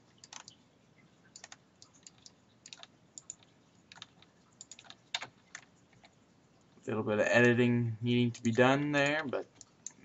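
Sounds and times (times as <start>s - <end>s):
faint keyboard keystrokes: 0.2s - 0.6s, 1.3s - 6.2s.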